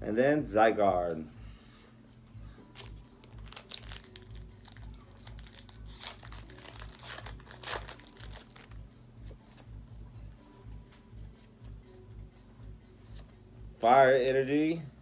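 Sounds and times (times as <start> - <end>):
foil wrapper crinkling and tearing: 2.8 - 8.8.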